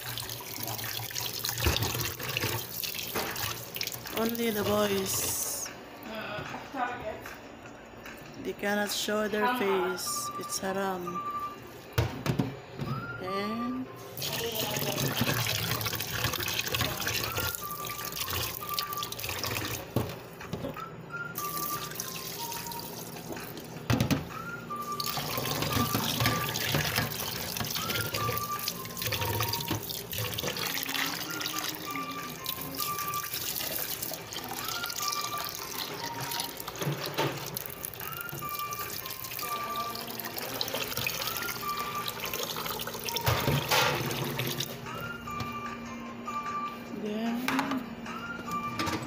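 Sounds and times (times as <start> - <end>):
tap water splashing into saucepan: 0.6 - 4.2.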